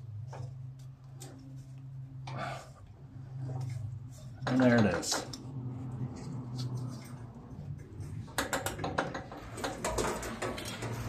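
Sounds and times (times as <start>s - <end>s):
hands clicking and scraping belt: 3.4s - 11.0s.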